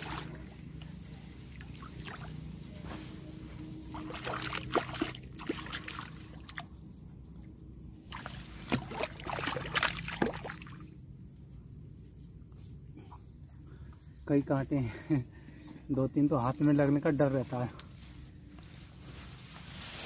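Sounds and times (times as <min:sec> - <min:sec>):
water splashing and sloshing: 0:00.0 - 0:03.1, 0:03.8 - 0:06.8, 0:07.9 - 0:11.0.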